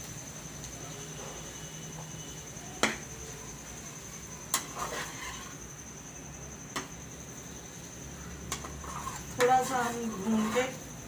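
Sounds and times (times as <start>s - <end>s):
spoon scraping pan: 4.2s - 5.8s, 8.4s - 11.0s.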